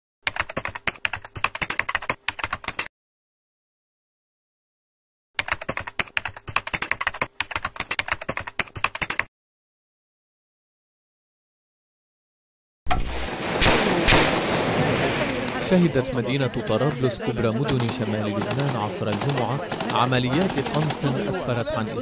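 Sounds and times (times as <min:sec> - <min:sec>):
computer keyboard typing: 0:00.2 - 0:02.9, 0:05.4 - 0:09.3, 0:17.6 - 0:21.5.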